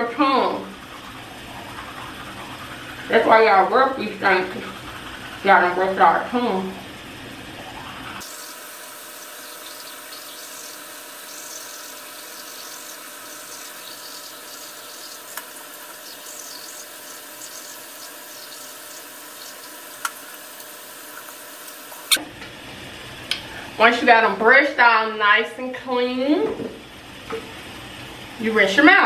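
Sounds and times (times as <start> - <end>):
toothbrush scrubbing: 0.4 - 6.3, 9.1 - 21.4.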